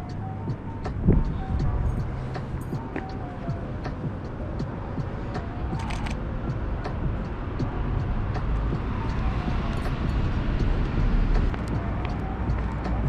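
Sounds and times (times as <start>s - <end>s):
city traffic rumble: 0.0s - 13.0s
sharp clicks: 5.8s - 6.2s.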